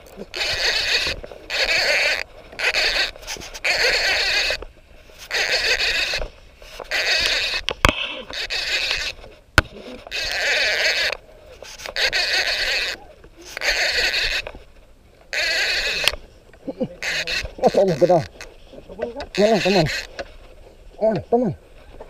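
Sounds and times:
sharp clicks: 0.0s - 14.6s, 15.3s - 20.3s
fishing reel whirring: 0.3s - 4.6s, 5.2s - 9.2s, 10.1s - 14.5s, 15.3s - 16.2s, 17.0s - 18.5s, 19.3s - 20.2s.

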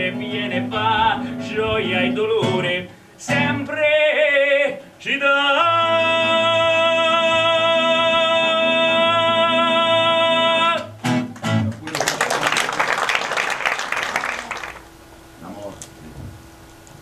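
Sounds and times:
acoustic guitar: 0.0s - 12.4s
audience applauding: 11.3s - 14.9s.

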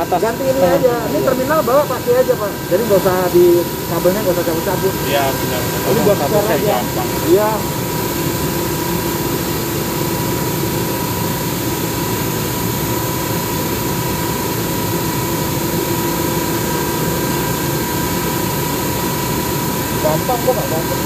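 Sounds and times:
machinery noise: 0.0s - 8.7s, 16.5s - 21.0s
high-pitched whine: 0.0s - 21.0s.

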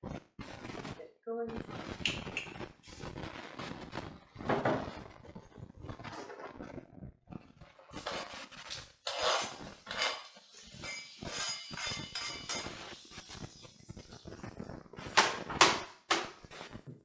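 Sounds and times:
utensil clinking and scraping pan: 9.0s - 13.1s.

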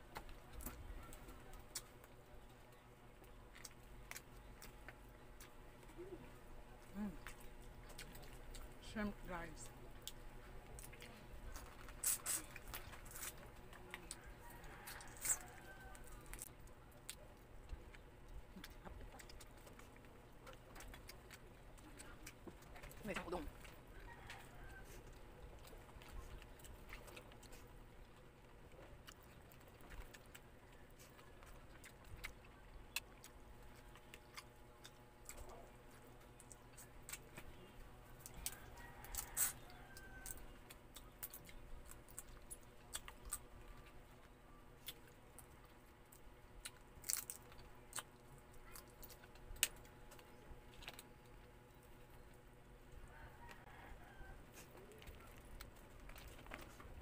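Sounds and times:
chewing: 0.0s - 8.8s, 9.6s - 57.0s
shells cracking and crunching: 46.6s - 52.3s.

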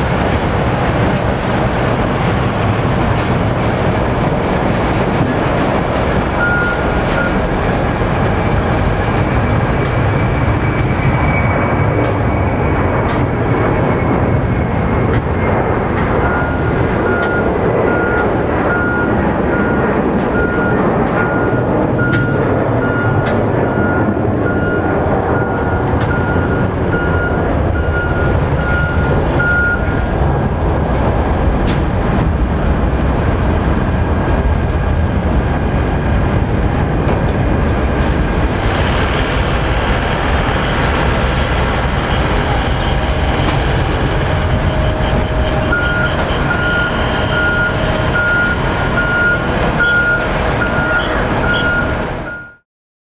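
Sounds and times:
jet engine roar: 0.0s - 52.6s
electronic beeps: 6.4s - 7.4s, 16.2s - 30.0s, 44.8s - 52.6s.

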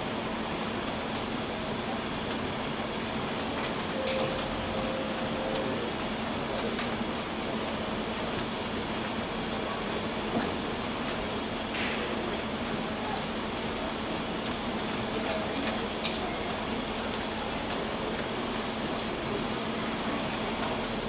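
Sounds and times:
short steady tone: 3.9s - 5.8s.

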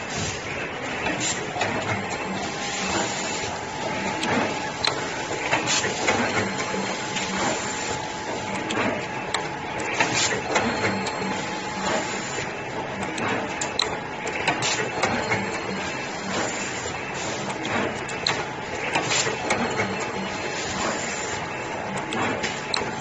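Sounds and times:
machine humming: 0.0s - 23.0s
sharp mechanical clicks and clacks: 0.0s - 23.0s.

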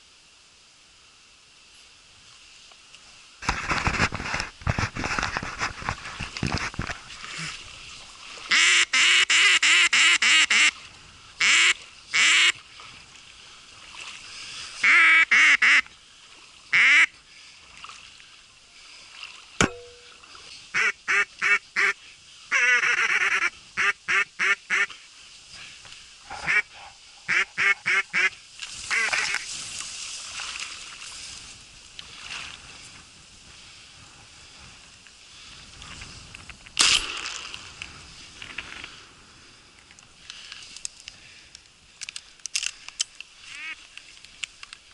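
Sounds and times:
duck call quacking: 8.5s - 10.8s, 11.4s - 12.6s, 14.8s - 15.9s, 16.7s - 17.1s, 20.7s - 24.9s, 26.4s - 26.7s, 27.3s - 29.4s, 43.5s - 43.8s.

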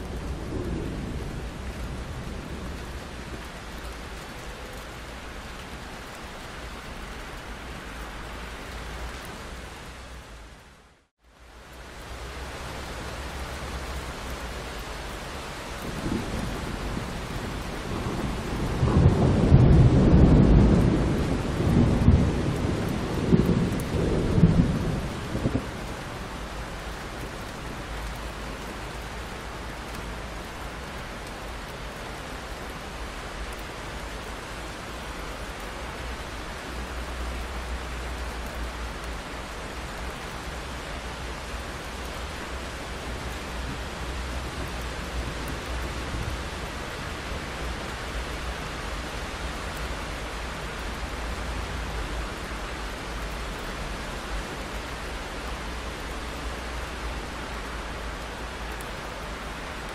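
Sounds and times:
thunder rumbling: 0.0s - 3.5s, 15.8s - 26.5s
steady rain: 0.0s - 59.9s.

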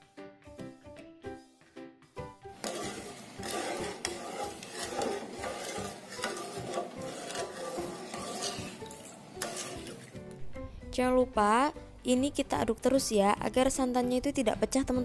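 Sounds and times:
spatula stirring and scraping pan: 2.5s - 10.3s.

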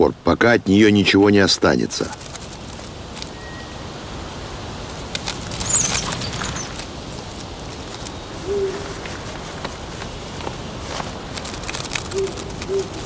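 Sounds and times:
night forest ambience: 0.0s - 13.0s
rustle: 0.0s - 13.0s
high chirp: 3.3s - 3.9s, 5.6s - 6.7s
owl hooting: 8.4s - 9.3s, 12.1s - 13.0s
scattered clicks: 11.3s - 13.0s.

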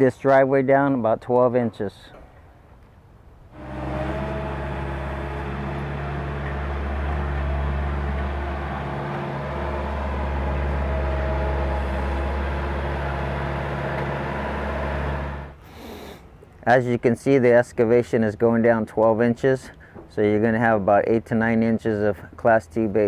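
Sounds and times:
loader engine running: 3.5s - 15.6s.

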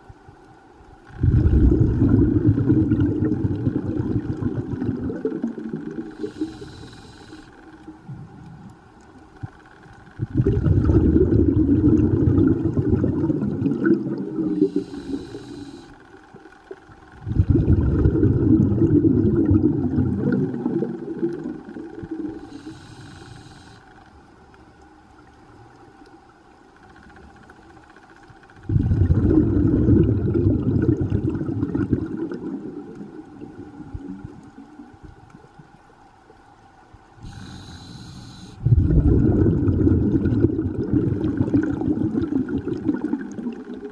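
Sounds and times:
diver exhaling bubbles: 1.1s - 7.0s, 10.2s - 15.6s, 17.2s - 23.2s, 28.6s - 34.9s, 37.3s - 43.9s
hissing inhalation through regulator: 1.4s - 8.7s, 13.4s - 16.1s, 17.4s - 24.1s, 37.2s - 40.6s.

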